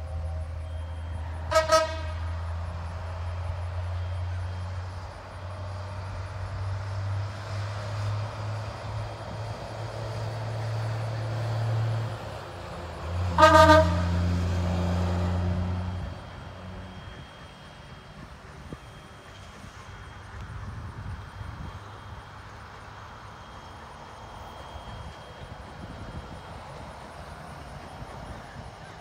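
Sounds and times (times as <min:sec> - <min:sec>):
steam whistle blast: 0:00.6 - 0:02.6, 0:13.3 - 0:14.4.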